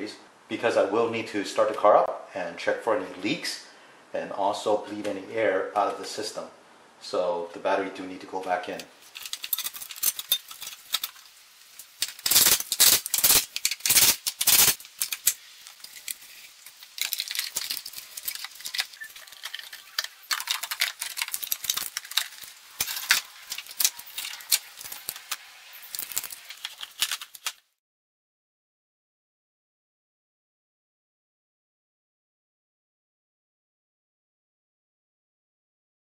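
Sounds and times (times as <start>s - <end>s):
plastic parts clicking and rattling: 8.8s - 27.7s.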